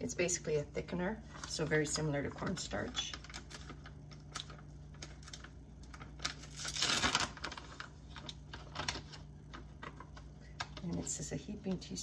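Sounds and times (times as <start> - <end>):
bag crinkling and rustling: 2.5 - 10.8.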